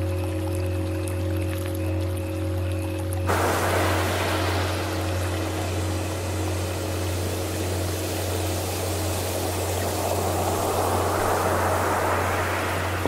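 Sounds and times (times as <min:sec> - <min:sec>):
steady low hum: 0:00.0 - 0:13.0
ocean waves washing in: 0:03.3 - 0:13.0.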